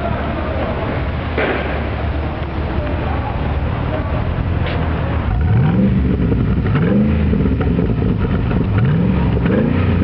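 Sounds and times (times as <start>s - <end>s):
engine revving: 5.3s - 10.0s.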